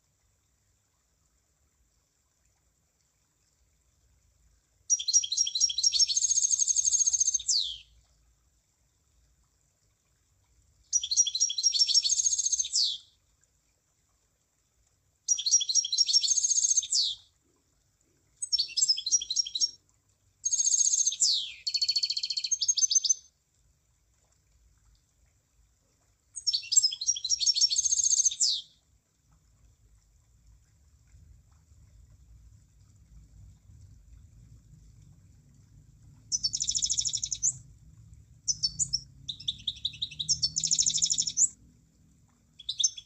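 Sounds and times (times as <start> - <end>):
bird twittering: 4.9 - 7.9, 11.0 - 13.0, 15.3 - 17.2, 18.4 - 19.8, 20.4 - 23.2, 36.3 - 37.6, 38.5 - 41.6, 42.6 - 43.0.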